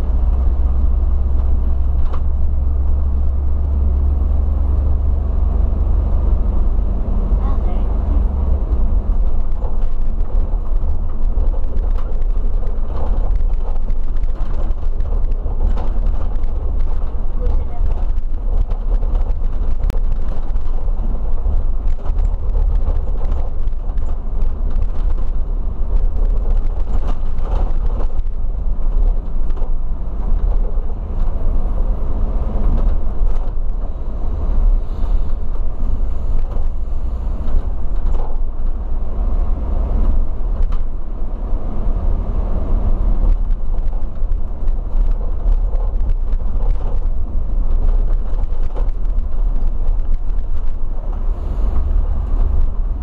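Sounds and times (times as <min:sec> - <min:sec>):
coach engine and tyre rumble: 0:00.0 - 0:53.0
small clicks and rattles: 0:08.7 - 0:31.4, 0:37.4 - 0:38.8, 0:43.2 - 0:51.3.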